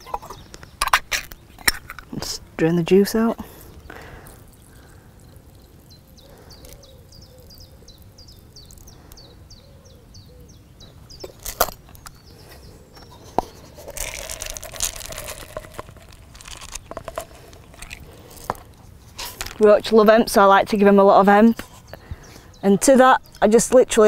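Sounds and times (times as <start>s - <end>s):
small bird singing: 0.0s - 14.3s, 16.4s - 24.0s
seed rattling into a cup: 11.2s - 12.2s, 13.7s - 19.7s.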